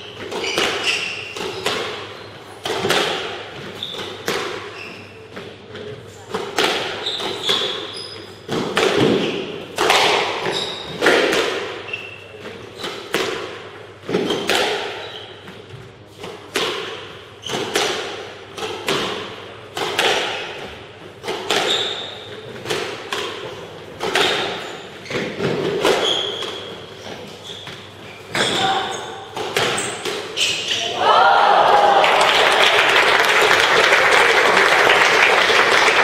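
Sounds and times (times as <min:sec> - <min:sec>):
shoes squeaking on wooden floor: 0:00.0 - 0:02.6, 0:03.6 - 0:06.2, 0:07.0 - 0:09.5, 0:10.4 - 0:11.0, 0:14.1 - 0:16.0, 0:21.5 - 0:22.7, 0:24.2 - 0:30.9
squash ball hitting rackets and walls: 0:00.0 - 0:31.0.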